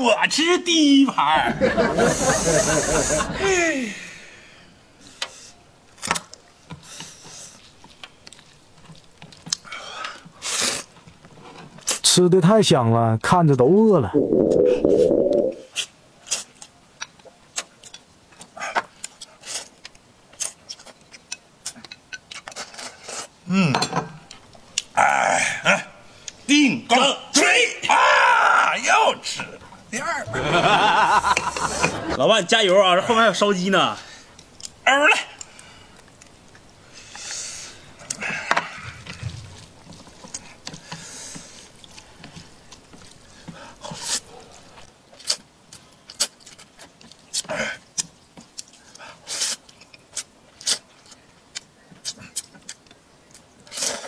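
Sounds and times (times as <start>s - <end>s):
person slurping noodles: 14.2s - 15.7s.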